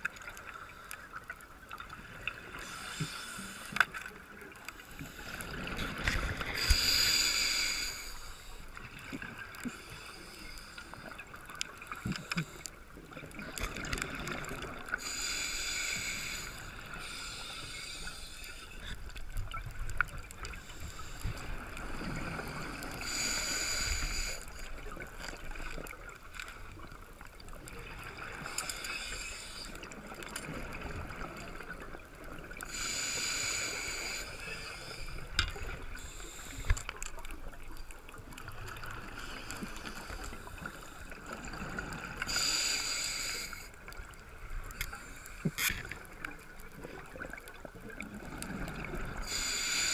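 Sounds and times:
quiet breathing: 0.0 - 49.9
regulator exhalation bubbly hiss: 6.5 - 8.4, 49.2 - 49.9.

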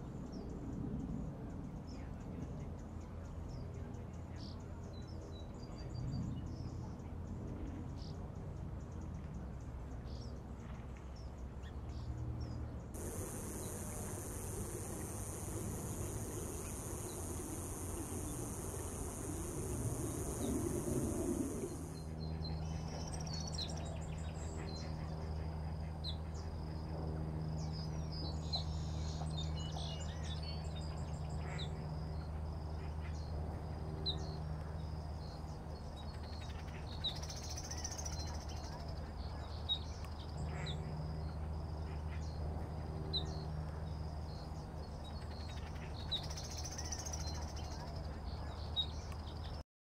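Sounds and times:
steady low hum: 12.9 - 49.6
high insect buzz: 13.0 - 22.1.

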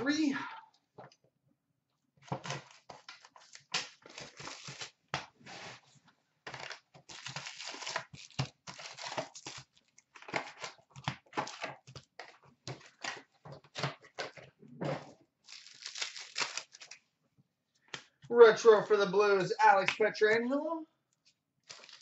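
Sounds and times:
cardboard and foil tearing: 2.4 - 5.8, 6.5 - 12.1, 15.4 - 17.0, 21.6 - 22.0.

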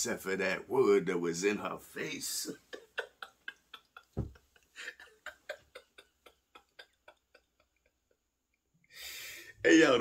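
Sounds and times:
man laughing quietly: 2.6 - 8.2.

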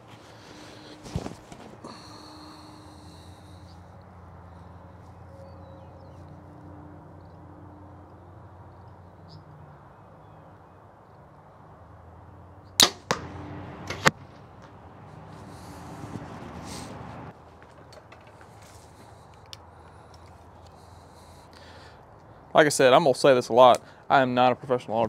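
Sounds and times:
arrow striking target: 12.8 - 14.9.

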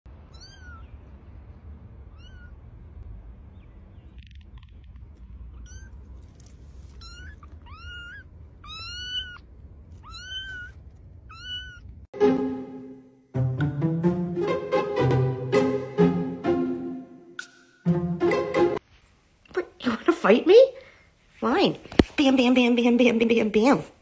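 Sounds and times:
kitten meowing: 0.3 - 0.9, 2.1 - 2.6, 5.5 - 6.0, 6.9 - 11.9
music: 12.2 - 18.8.

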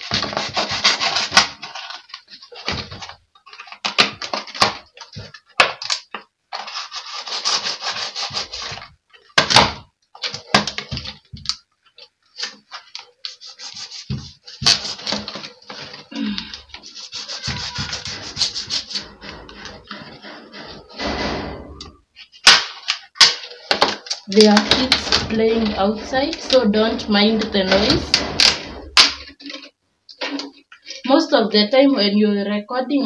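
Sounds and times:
knife sawing through plastic bottle: 0.0 - 2.0, 6.6 - 8.9, 13.3 - 15.4, 16.7 - 20.8
sharp knocks: 17.3 - 22.0, 24.4 - 29.3.

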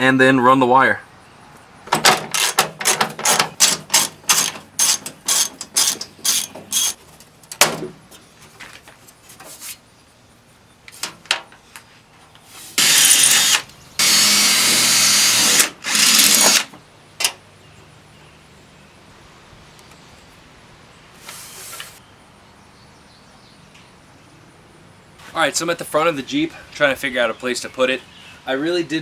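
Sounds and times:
cordless drill boring metal: 2.3 - 7.0, 12.8 - 16.7.

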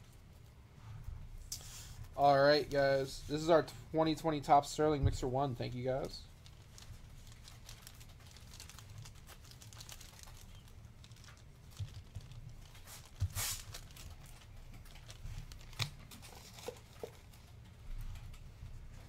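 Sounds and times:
plastic card sleeves rustling: 5.6 - 17.5.

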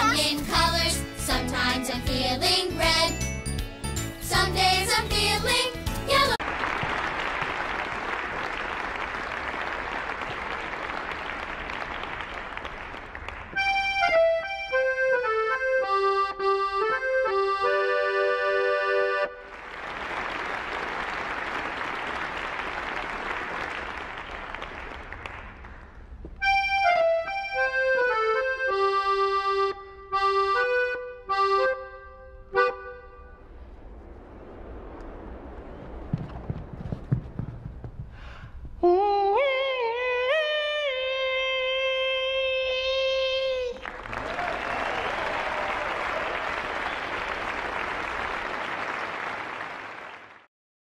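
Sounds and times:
noisy wash like applause: 6.2 - 13.6, 19.4 - 26.2, 43.8 - 50.5
accordion-like music phrase: 13.6 - 19.5, 26.4 - 33.4.

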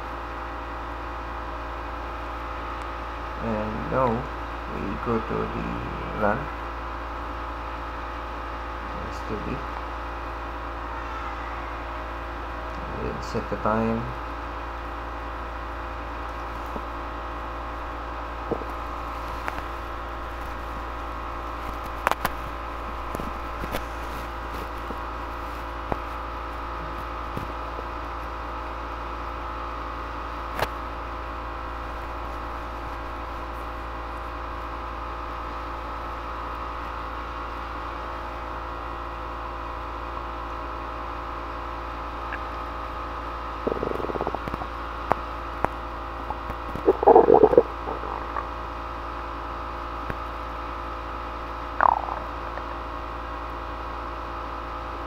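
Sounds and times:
electrical hum and hiss: 0.0 - 55.0
short bursts of noise: 46.3 - 48.6.

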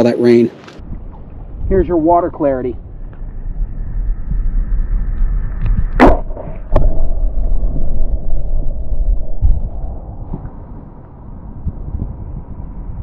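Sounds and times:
muffled underwater wash: 2.8 - 13.0
water rumbling against microphone: 2.8 - 13.0.

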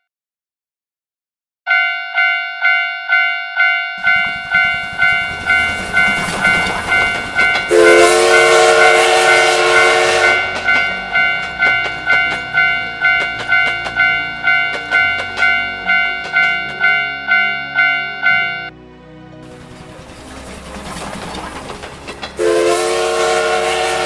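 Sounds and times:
railroad crossing bell ringing: 1.7 - 18.7
steam whistle blowing: 4.0 - 11.4, 22.4 - 24.0
train wheels clicking on rail joints: 4.0 - 18.3, 19.4 - 24.0
steam train running: 4.0 - 18.7, 19.4 - 24.0.

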